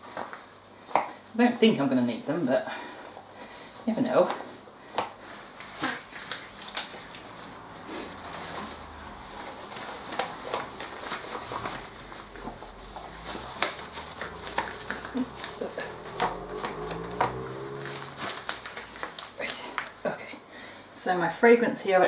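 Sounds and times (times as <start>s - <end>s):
rubber gloves rustling: 2.7s - 20.2s.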